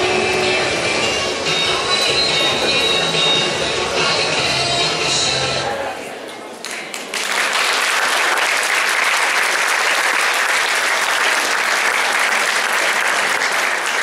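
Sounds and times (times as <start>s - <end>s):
audience applauding: 6.6s - 14.0s.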